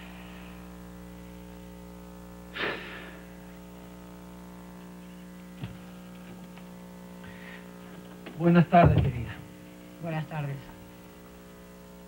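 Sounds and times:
electrical mains hum: 0.0s - 12.0s
short breathy sound: 2.6s - 3.3s.

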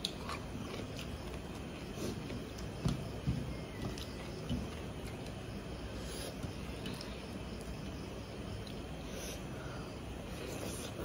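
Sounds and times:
chewing: 0.0s - 2.8s.

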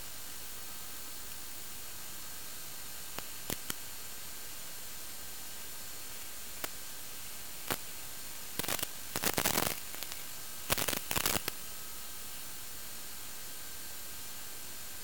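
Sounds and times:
radio static hiss: 0.0s - 12.4s
crackling interference: 2.6s - 4.3s, 5.5s - 11.7s.

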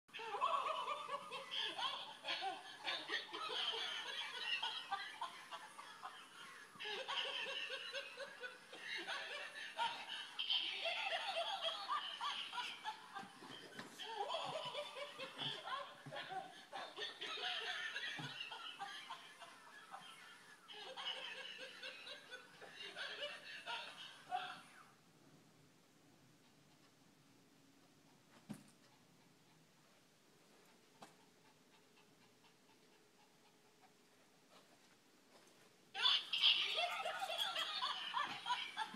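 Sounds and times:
person laughing: 0.2s - 20.0s, 36.0s - 38.9s.

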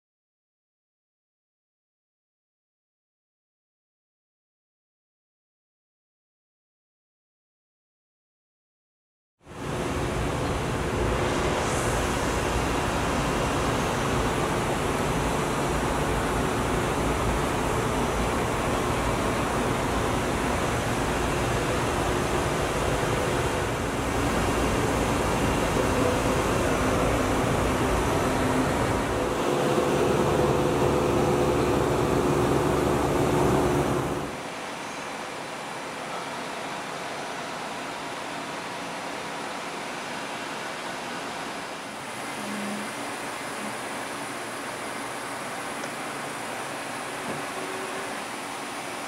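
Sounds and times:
machine shop hiss and rumble: 9.4s - 49.0s
rush of moving air: 9.8s - 15.3s
low droning hum: 24.3s - 34.3s.

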